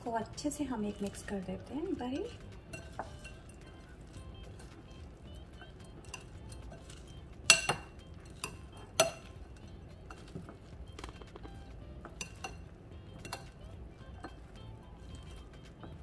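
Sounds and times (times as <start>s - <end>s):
spoon clinking against bowl: 2.2s - 4.8s, 5.5s - 10.6s, 12.0s - 15.5s.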